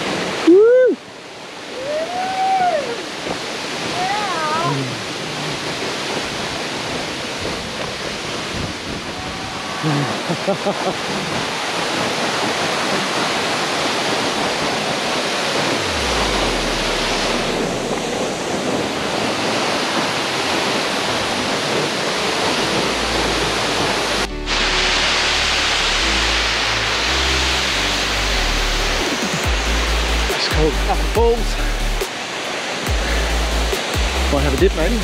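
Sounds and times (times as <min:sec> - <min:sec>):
waterfall rushing: 0:00.0 - 0:35.0
background music with bass: 0:15.8 - 0:18.8, 0:22.4 - 0:32.1, 0:32.9 - 0:35.0.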